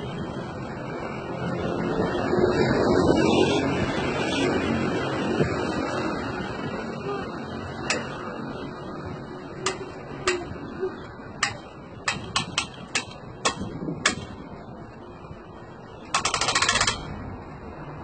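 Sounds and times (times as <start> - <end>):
metal clicks and knocks: 7.8 - 8.2, 9.6 - 10.6, 11.4 - 14.4, 16.0 - 17.2
rapid ratchet-like clicks: 9.6 - 10.6, 11.4 - 14.4, 16.0 - 17.2.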